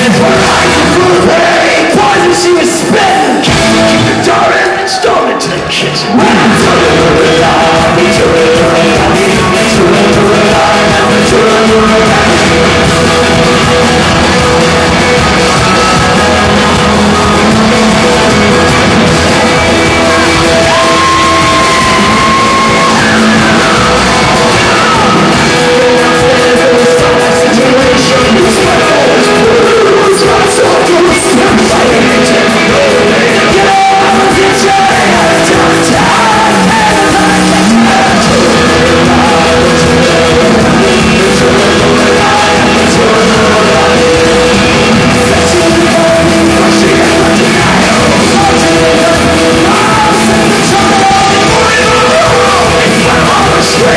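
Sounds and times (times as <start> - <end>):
folk band with singing: 0.0 - 53.9.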